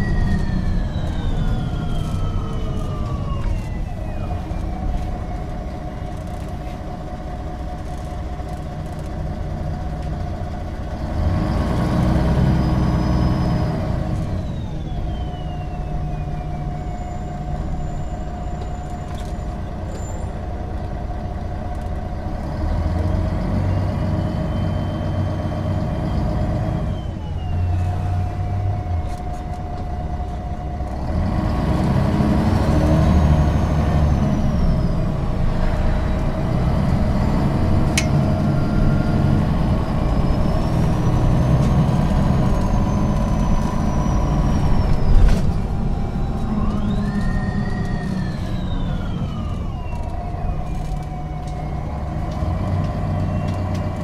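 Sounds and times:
whine gliding down in pitch: 0.0 - 5.6, 42.2 - 51.9
bus diesel engine driving: 0.0 - 54.0.

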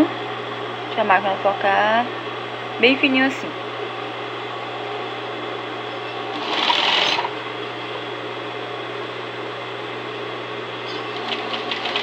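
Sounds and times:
electric sewing machine running: 6.2 - 7.4, 10.9 - 12.0.

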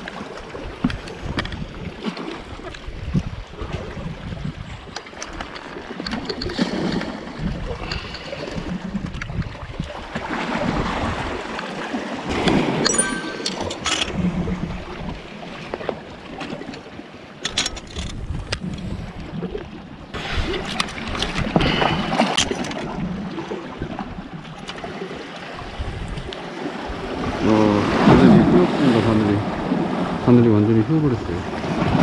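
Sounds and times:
wind buffeting microphone: 0.5 - 5.0, 6.3 - 11.5, 17.9 - 22.1, 25.6 - 30.3
clicks and rattles of fishing tools: 0.8 - 1.7, 4.8 - 9.5, 12.4 - 14.3, 15.7 - 19.3, 20.6 - 23.0
surf washing against rocks: 5.3 - 17.2, 20.1 - 32.0.

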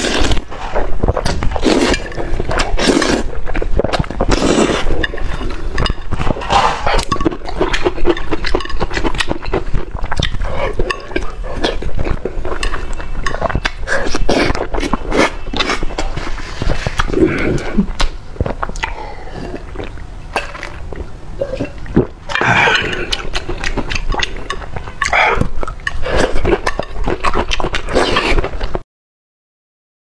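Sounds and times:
wet chewing and mouth smacking: 0.0 - 28.8.

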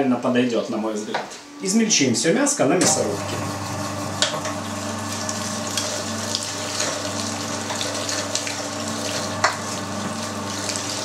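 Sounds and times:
electric meat grinder motor humming: 2.8 - 11.0.

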